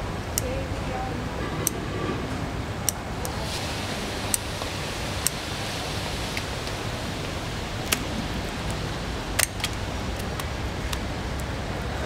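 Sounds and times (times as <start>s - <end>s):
background hiss: 0.0s - 12.0s
scissors snipping shell: 9.4s - 11.5s.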